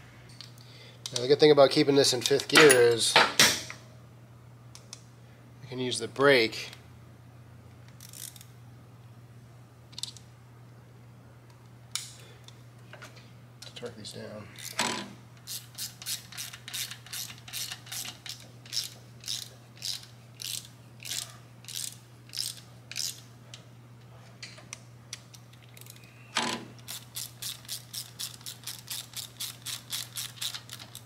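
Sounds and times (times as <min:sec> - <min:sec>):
hand ratchet clicking: 0:14.6 - 0:23.2, 0:25.8 - 0:31.0.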